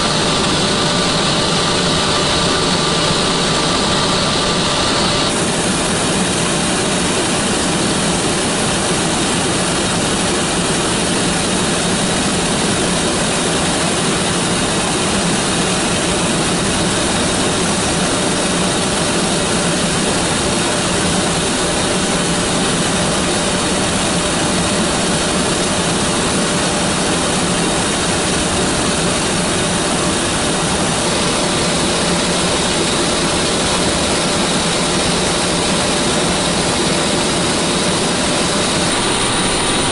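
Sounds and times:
faint turbine whine: 0.0s - 39.9s
helicopter cabin engine rush: 0.0s - 39.9s.

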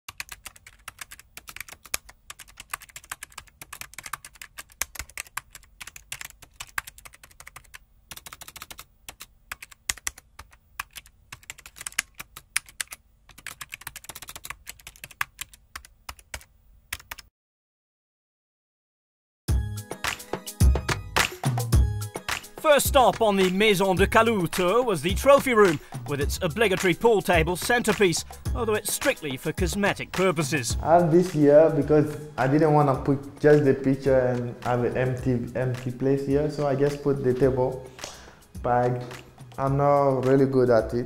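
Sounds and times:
rapid keyboard typing: 0.1s - 17.3s, 22.3s - 31.4s.

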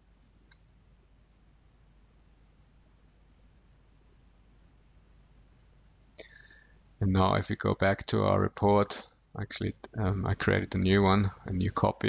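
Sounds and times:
computer mouse clicks: 0.0s - 0.7s, 3.4s - 3.6s, 5.5s - 6.4s.

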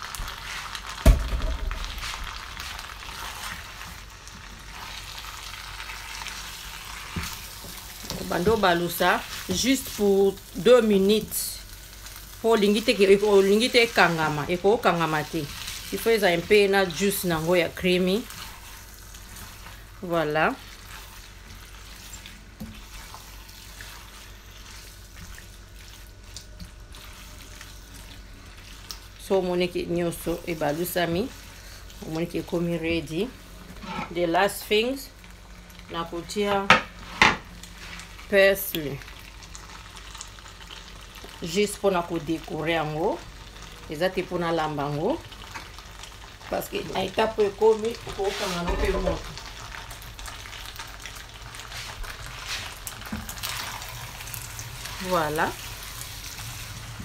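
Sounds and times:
spatula stirring: 0.0s - 10.8s, 12.9s - 34.4s, 47.2s - 49.8s
food sizzling in a frying pan: 0.0s - 57.0s
sharp knock: 1.0s - 2.0s.

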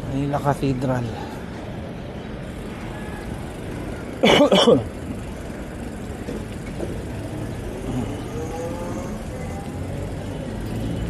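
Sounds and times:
city street traffic: 0.0s - 11.0s.

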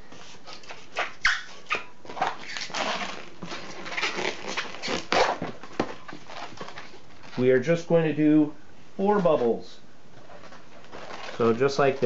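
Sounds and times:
balloon rubbing: 0.0s - 6.6s
balloon squeaking: 0.0s - 7.4s, 10.2s - 12.0s.

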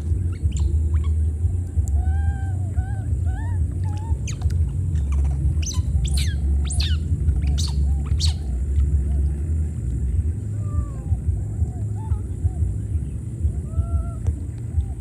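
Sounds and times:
steady low rumble: 0.0s - 15.0s
high-pitched falling calls: 0.4s - 9.2s.

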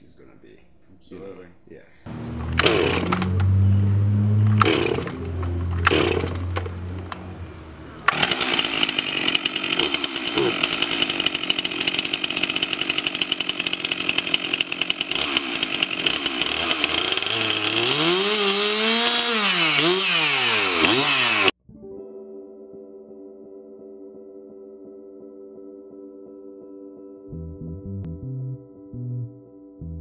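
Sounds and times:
chainsaw revving: 2.1s - 21.6s.

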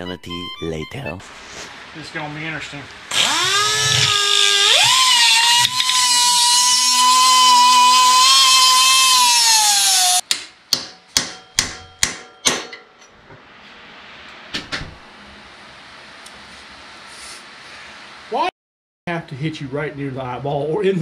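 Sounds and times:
die grinder whining: 3.1s - 10.2s.

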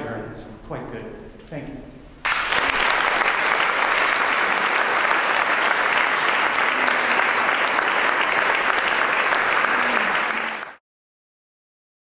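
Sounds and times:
audience applauding: 2.2s - 10.8s.

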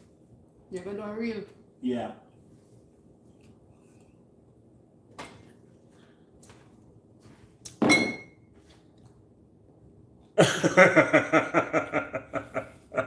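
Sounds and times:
glass bottle clunking on countertop: 7.8s - 8.4s
person laughing: 10.4s - 13.0s.

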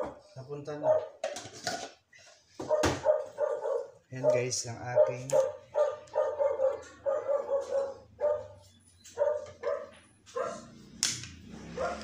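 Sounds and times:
dog barking: 2.6s - 10.8s, 11.7s - 12.0s.

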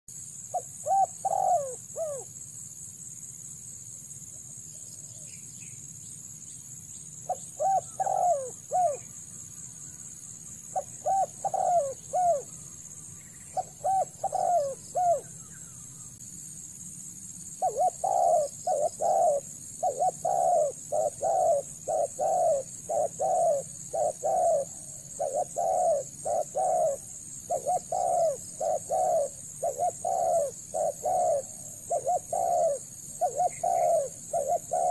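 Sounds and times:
doves cooing: 0.5s - 2.3s, 7.3s - 9.2s, 10.7s - 16.2s, 17.6s - 34.9s.

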